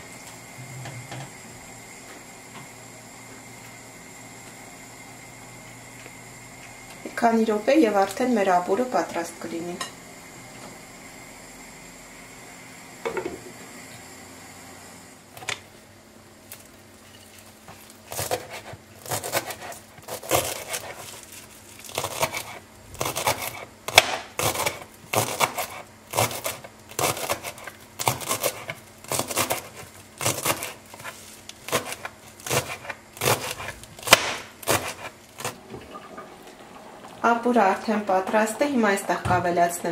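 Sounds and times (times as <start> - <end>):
knife chopping on plastic board: 22.0 - 31.1, 31.7 - 35.6.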